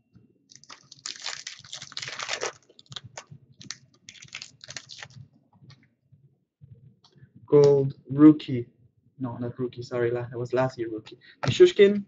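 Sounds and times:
trading cards clicking and rustling: 0:00.5 - 0:05.2.

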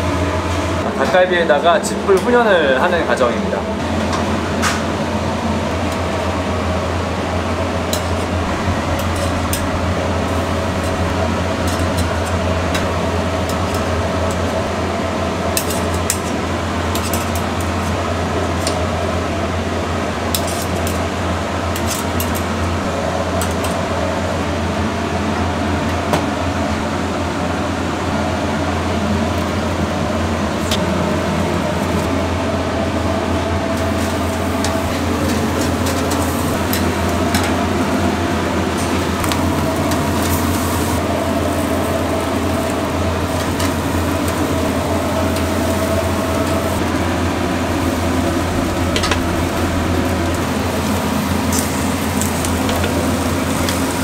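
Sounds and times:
ventilation fan drone: 0:00.0 - 0:54.0
burning straw crackling: 0:05.4 - 0:19.1, 0:38.6 - 0:54.0.

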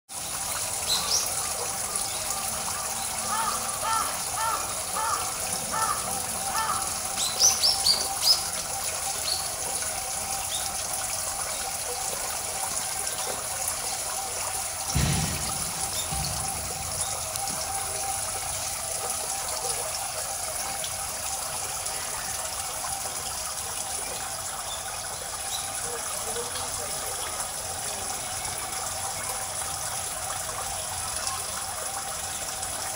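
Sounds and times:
water trickling: 0:00.1 - 0:32.9
dull low thump: 0:14.9 - 0:18.3.

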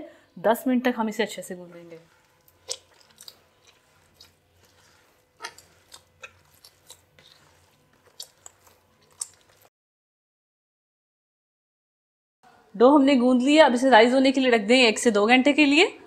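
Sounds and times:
hands kneading wet dough: 0:00.6 - 0:09.7.

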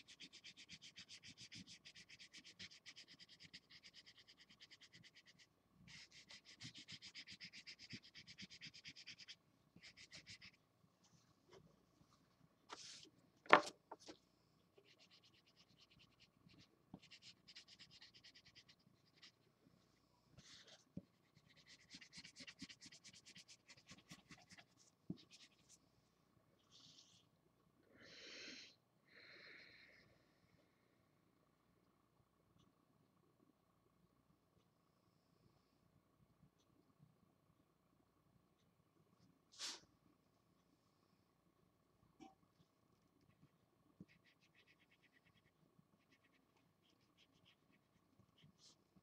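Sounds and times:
marker scribbling on paper: 0:00.0 - 0:10.6, 0:14.8 - 0:19.4, 0:20.4 - 0:25.8.

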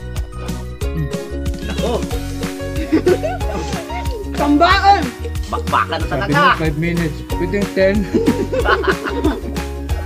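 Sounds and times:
background music with steady beat: 0:00.0 - 0:10.0
person laughing: 0:00.9 - 0:04.4, 0:08.0 - 0:09.5.

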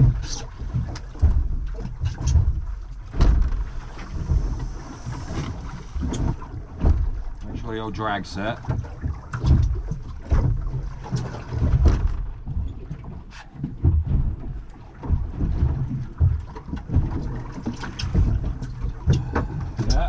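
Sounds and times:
wind buffeting microphone: 0:08.7 - 0:20.0.

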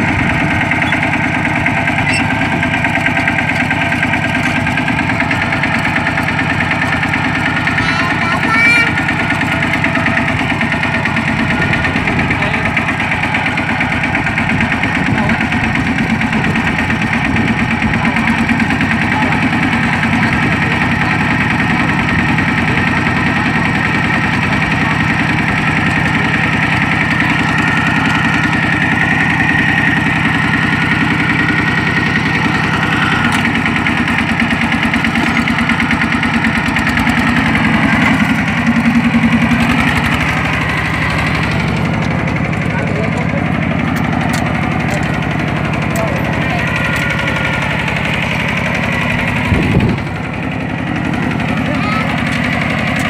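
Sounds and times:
diesel engine running steadily: 0:00.0 - 0:53.0.

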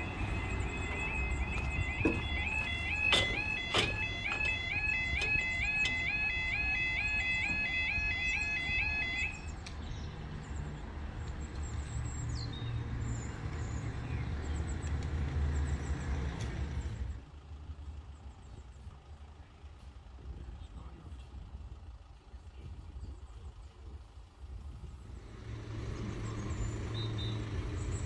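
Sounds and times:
level crossing alarm warbling: 0:00.0 - 0:09.6
road vehicles idling: 0:00.0 - 0:28.0.

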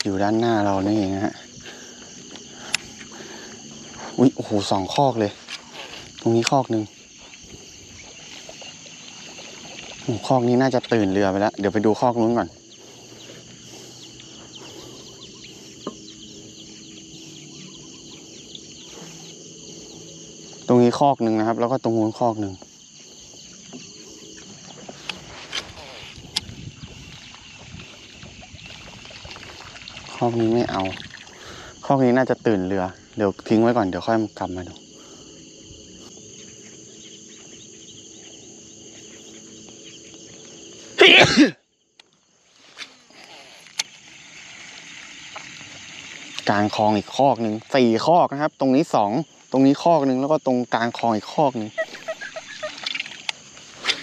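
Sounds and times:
small birds chirping: 0:00.0 - 0:31.9, 0:34.4 - 0:41.0, 0:50.8 - 0:54.0
person coughing: 0:41.0 - 0:41.6.

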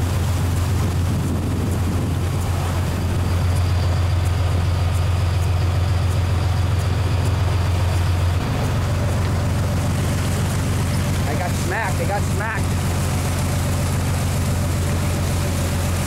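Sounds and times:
boat engines droning: 0:00.0 - 0:16.0
wake rushing: 0:00.0 - 0:16.0
wind: 0:00.0 - 0:16.0.

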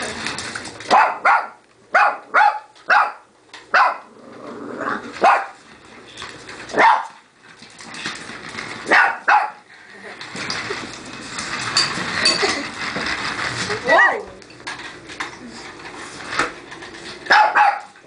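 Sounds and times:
puppy barking: 0:00.9 - 0:04.1, 0:05.2 - 0:05.6, 0:06.8 - 0:07.2, 0:08.9 - 0:09.6, 0:17.3 - 0:18.0.

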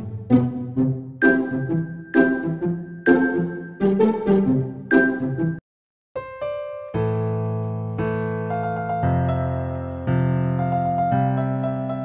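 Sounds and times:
instrumental background music: 0:00.0 - 0:05.6.

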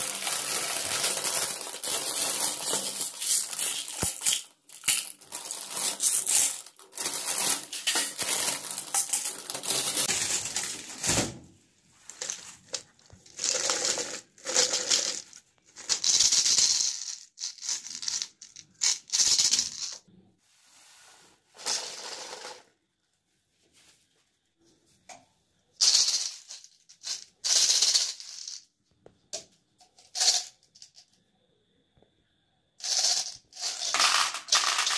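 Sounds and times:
plastic bag crinkling: 0:00.0 - 0:11.0
plastic balls rattling: 0:00.0 - 0:11.0, 0:12.0 - 0:20.1, 0:25.8 - 0:28.7, 0:29.9 - 0:31.2, 0:32.8 - 0:34.9.

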